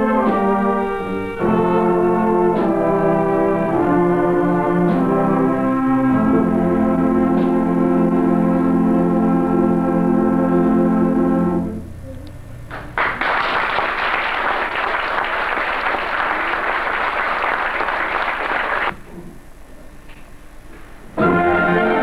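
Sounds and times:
wind band holding a chord: 0.0s - 11.9s, 21.2s - 22.0s
audience applause: 12.7s - 18.9s.

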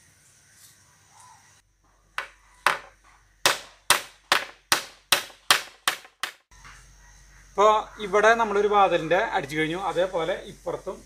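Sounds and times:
hammer nailing into wood: 2.2s - 6.4s.

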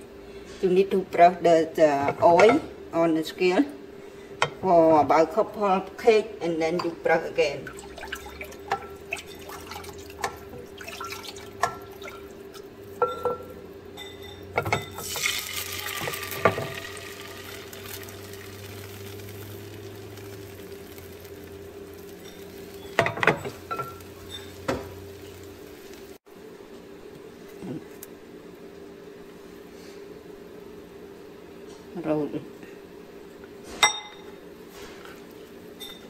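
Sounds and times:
steady hum: 0.0s - 33.4s
utensils tapping pan and bowl: 8.6s - 12.2s, 13.0s - 15.3s, 15.9s - 16.9s, 22.1s - 25.0s
batter pouring into pan: 15.0s - 26.2s.

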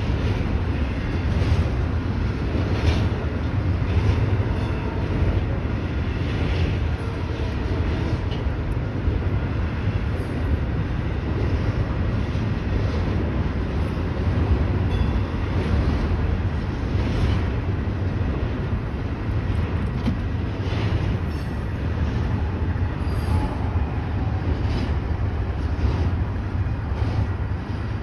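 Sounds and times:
train wheels rumbling on rail: 0.0s - 28.0s.

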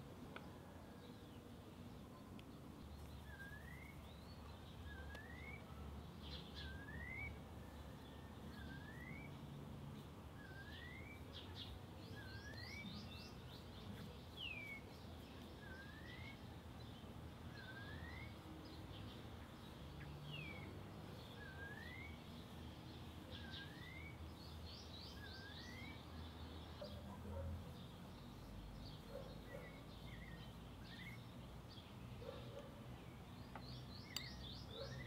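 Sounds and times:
bird chirps: 0.3s - 35.0s
bird whistling: 4.9s - 5.6s, 6.6s - 7.4s, 8.6s - 9.4s, 10.4s - 11.2s, 17.6s - 18.4s, 21.4s - 22.2s.

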